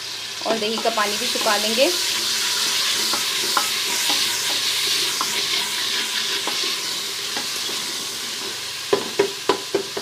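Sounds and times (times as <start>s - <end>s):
food sizzling in a pot: 0.0s - 10.0s
spatula scraping a pot: 0.7s - 6.8s.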